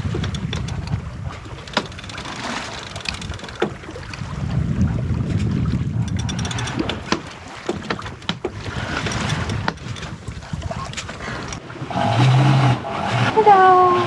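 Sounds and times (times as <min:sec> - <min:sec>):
clicks and knocks aboard: 0:00.0 - 0:04.3, 0:05.3 - 0:11.6
sea washing past hull: 0:00.0 - 0:14.0
wind buffeting microphone: 0:00.0 - 0:14.0.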